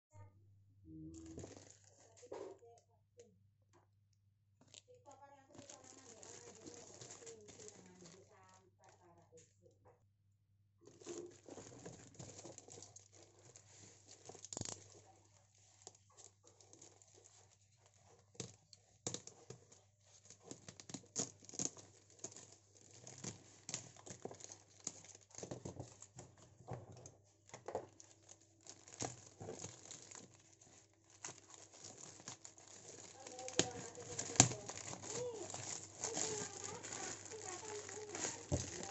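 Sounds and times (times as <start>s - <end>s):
plastic crinkling and tearing: 1.2s - 2.4s, 4.6s - 9.1s, 10.8s - 38.9s
small clicks and scrapes: 10.9s - 38.9s.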